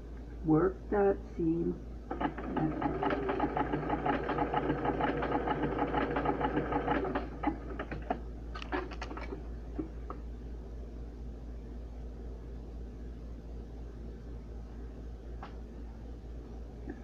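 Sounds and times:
sewing machine stitching: 2.1s - 9.2s.

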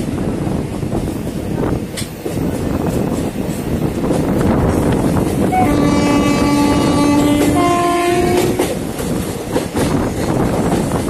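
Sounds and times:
train rumble and wheel clatter: 0.0s - 11.0s
two-tone train horn: 5.5s - 8.7s.

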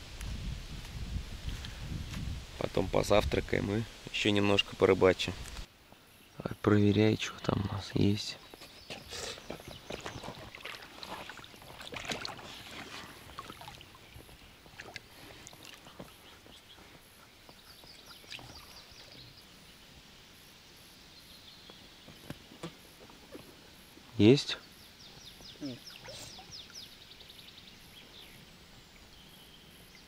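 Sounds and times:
water splashing around a boat: 9.6s - 16.5s.

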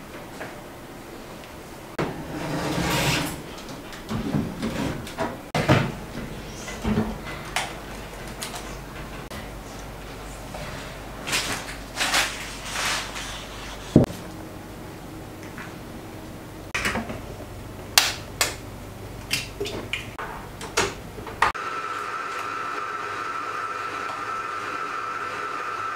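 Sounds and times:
metal baking tray clattering: 2.0s - 6.0s
oven door opening: 2.0s - 8.2s.

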